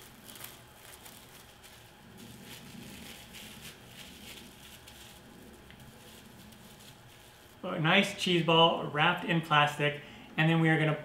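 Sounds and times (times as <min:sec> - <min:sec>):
plastic wrap crinkling: 0:00.0 - 0:08.5.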